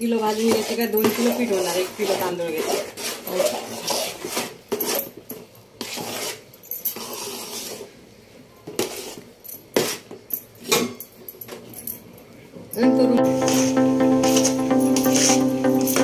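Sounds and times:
spoon scraping dough in steel pot: 0.0s - 8.0s, 8.7s - 10.2s.

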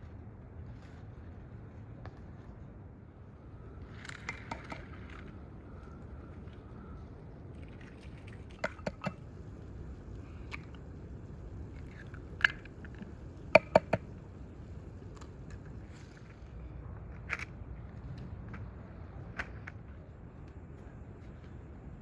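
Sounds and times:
low steady background hum: 0.0s - 22.0s
eggshells tapped and cracked: 11.8s - 14.1s.

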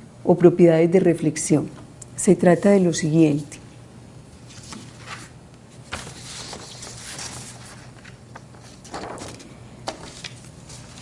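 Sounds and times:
paper rustling and shuffling: 4.4s - 11.0s.

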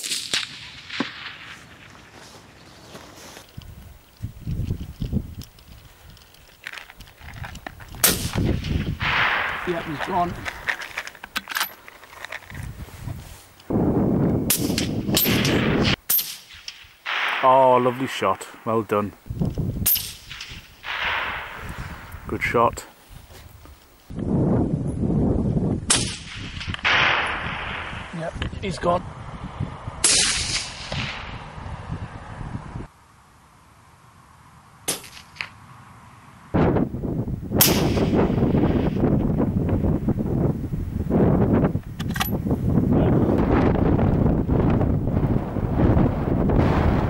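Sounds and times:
rifle shots: 0.0s - 1.8s, 8.0s - 10.4s, 14.5s - 18.6s, 19.8s - 22.1s, 25.9s - 28.1s, 37.6s - 38.8s.

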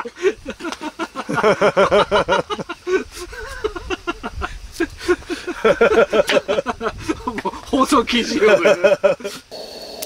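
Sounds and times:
man laughing heartily: 0.0s - 9.5s.

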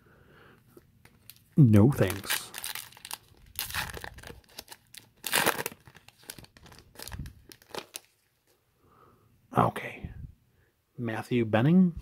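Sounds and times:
foil wrapper tearing and crinkling: 2.0s - 8.3s.

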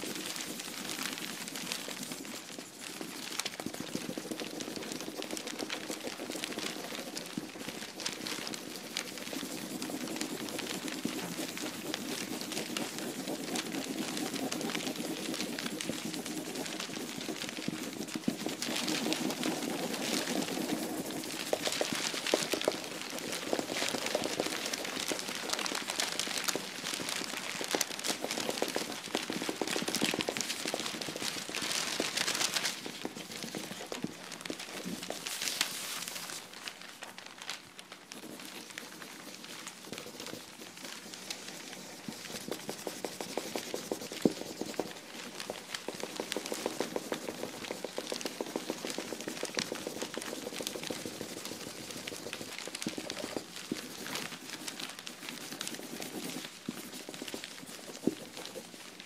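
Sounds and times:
dense crackling clicks: 18.2s - 41.5s.

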